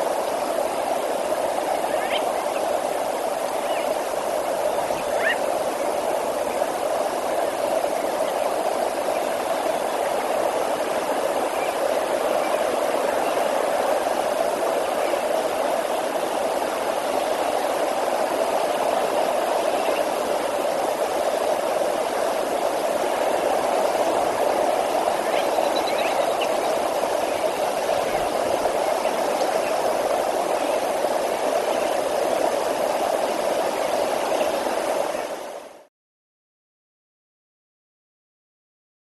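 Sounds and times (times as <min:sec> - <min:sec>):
river water rushing: 0:00.0 - 0:35.9.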